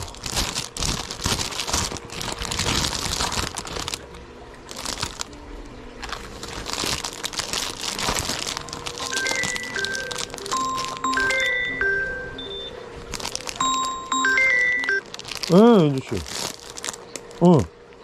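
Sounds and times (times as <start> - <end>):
packaging crinkling and rustling: 0.0 - 5.4, 6.0 - 11.6, 13.0 - 17.5
chime-like background music: 9.0 - 12.8, 13.6 - 15.0.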